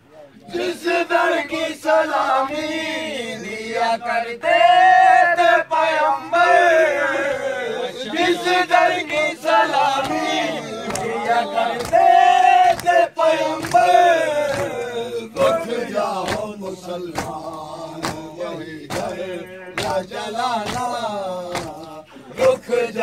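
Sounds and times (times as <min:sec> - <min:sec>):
men chanting a lament: 0:00.2 - 0:23.0
hands beating chests: 0:16.2 - 0:22.0.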